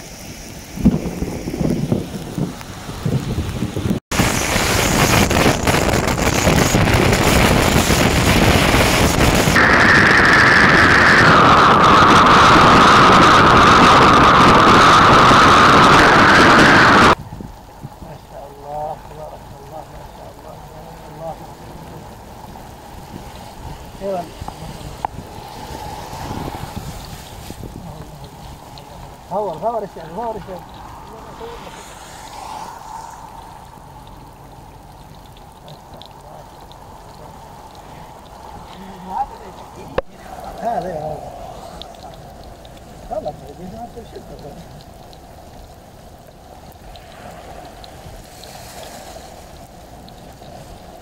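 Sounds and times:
rain: 0.0 - 51.0
tyres hissing on wet road: 0.0 - 51.0
water flowing over sand: 0.0 - 51.0
wind noise: 0.0 - 51.0
faint ticks: 32.6 - 39.1, 40.0 - 51.0.

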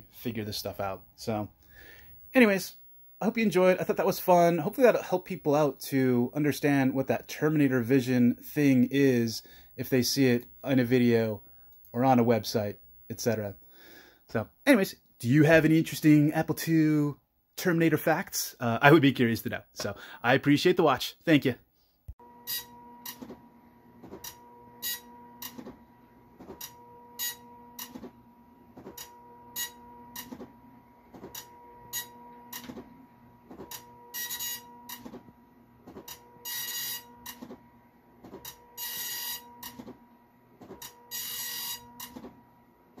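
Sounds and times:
dot matrix printer printing: 22.5 - 43.0.

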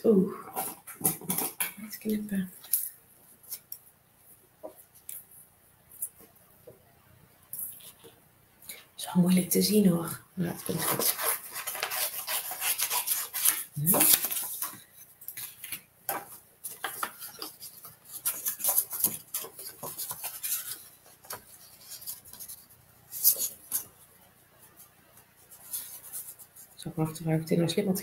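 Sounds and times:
paper rustling and scraping: 10.5 - 24.0, 24.7 - 26.8.

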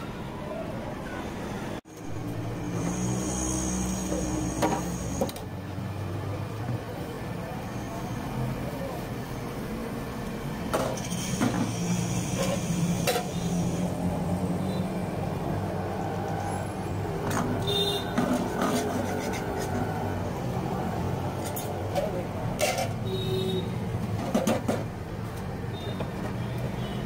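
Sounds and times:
low hum of street noise: 0.0 - 27.0.

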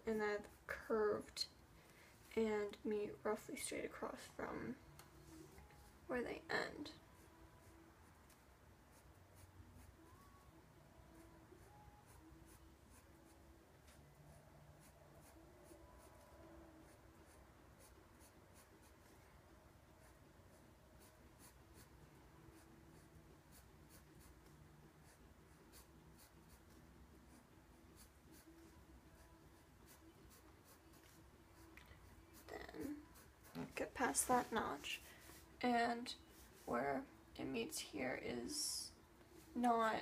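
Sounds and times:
pencil scratching on paper: 6.1 - 10.1, 11.6 - 19.2, 20.0 - 37.0.

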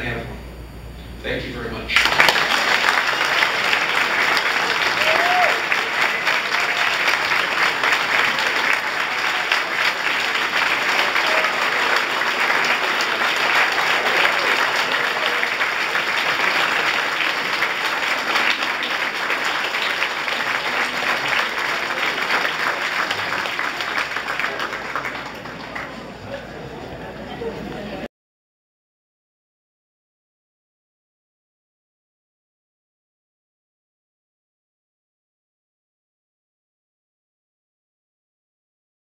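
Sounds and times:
audience applause: 1.9 - 28.1.

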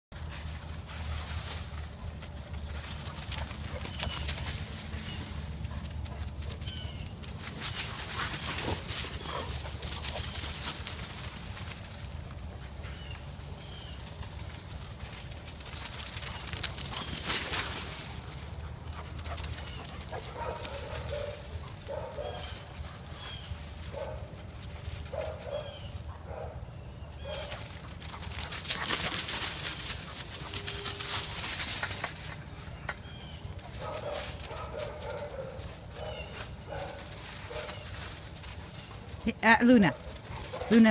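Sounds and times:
rustling in dry leaves: 0.1 - 40.9
puppies barking and yipping: 2.0 - 11.1, 18.4 - 39.2, 39.8 - 40.9.

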